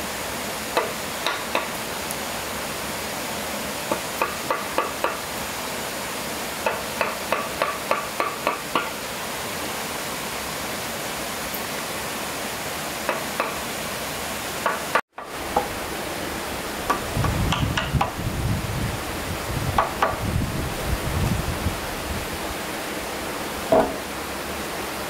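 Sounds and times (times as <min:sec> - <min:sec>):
tool tapping wood: 0:00.8 - 0:01.7, 0:03.9 - 0:05.2, 0:06.6 - 0:09.0, 0:13.1 - 0:13.6, 0:14.6 - 0:15.7, 0:16.9 - 0:18.2, 0:19.8 - 0:20.2, 0:23.7 - 0:24.0
steady rushing noise: 0:15.4 - 0:24.5.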